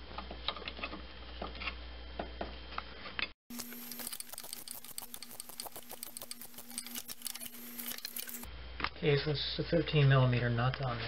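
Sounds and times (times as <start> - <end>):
hand ratchet clicking: 3.5 - 8.5
steady low hum: 3.5 - 8.8.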